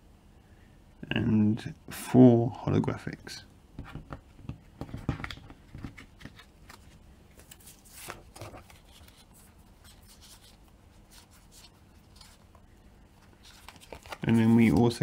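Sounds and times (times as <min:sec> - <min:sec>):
faint steady hum: 0:00.0 - 0:15.0
trading cards rustling and tapping: 0:03.8 - 0:12.5, 0:13.2 - 0:15.0.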